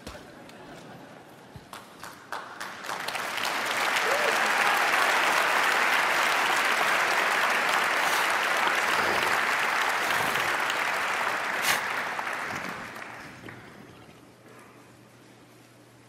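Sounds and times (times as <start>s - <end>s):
audience applauding: 1.7s - 14.2s.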